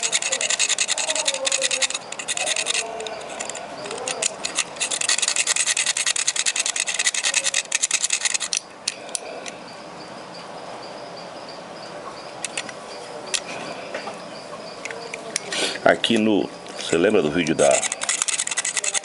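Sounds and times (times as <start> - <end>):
knife blade scraping: 0.0 - 9.3, 16.8 - 19.0.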